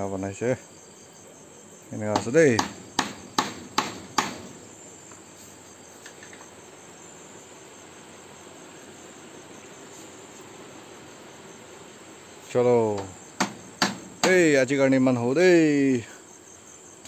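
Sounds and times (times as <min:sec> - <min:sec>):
crickets chirping: 0:00.0 - 0:17.0
sharp knock: 0:02.1 - 0:04.6, 0:13.0 - 0:14.4.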